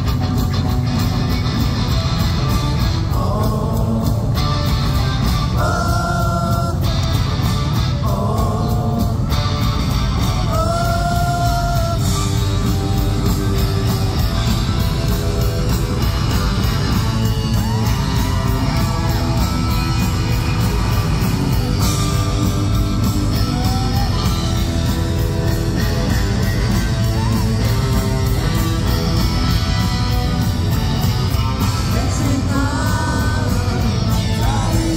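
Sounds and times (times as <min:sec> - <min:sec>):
drums: 0:00.0 - 0:34.9
electric guitar: 0:00.0 - 0:34.9
man singing and yelling: 0:03.0 - 0:04.6, 0:05.4 - 0:07.1, 0:07.9 - 0:09.4, 0:10.4 - 0:12.4, 0:31.7 - 0:34.9.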